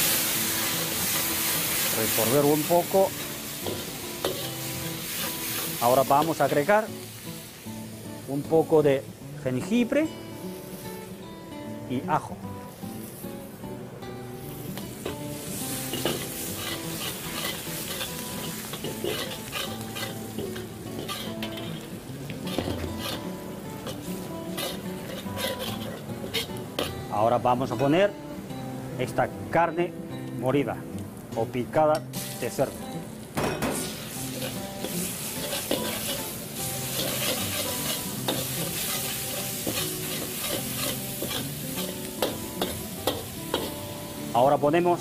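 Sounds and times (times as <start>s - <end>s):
food sizzling in hot oil: 0.0s - 27.9s, 32.0s - 45.0s
metal ladle scraping wok: 3.2s - 6.3s, 15.9s - 21.9s, 22.5s - 27.0s, 33.8s - 43.8s
ladle clinking against wok: 15.9s - 21.9s.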